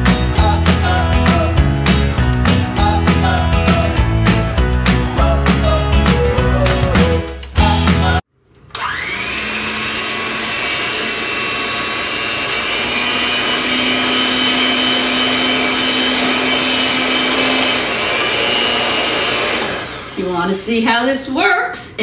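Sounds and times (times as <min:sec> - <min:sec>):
electric hand mixer whirring: 0:08.8 - 0:20.8.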